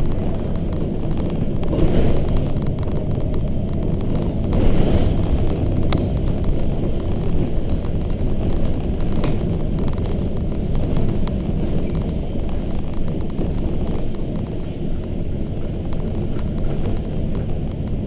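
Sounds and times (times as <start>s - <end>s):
bus diesel engine running: 0.0s - 18.0s
tyre and road noise: 0.0s - 18.0s.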